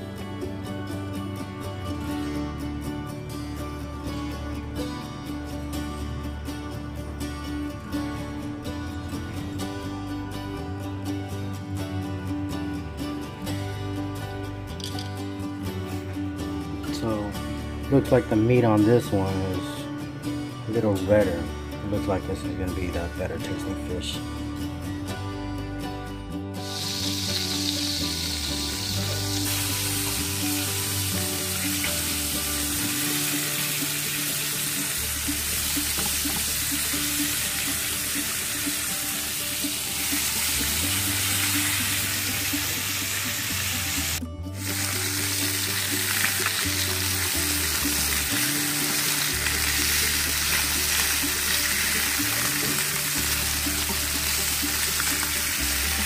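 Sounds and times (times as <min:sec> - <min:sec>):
background music: 0:00.0 - 0:56.0
fish fillets sizzling in pan: 0:26.6 - 0:56.0.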